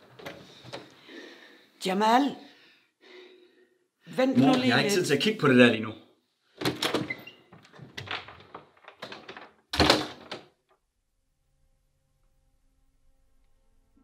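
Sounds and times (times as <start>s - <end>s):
door shutting with a thud: 6.6s - 10.4s
door lock and handle clicking: 6.6s - 10.5s.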